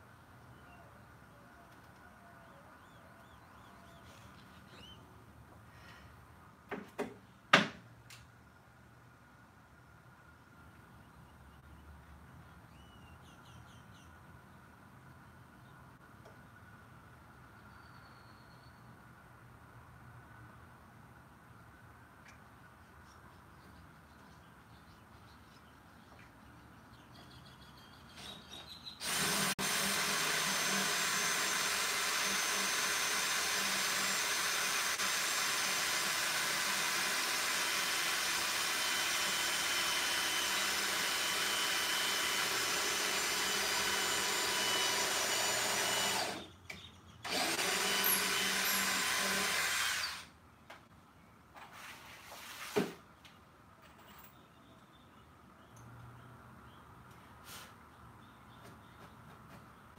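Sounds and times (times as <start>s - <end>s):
cordless drill into wood: 29.0s - 46.5s, 47.2s - 50.3s.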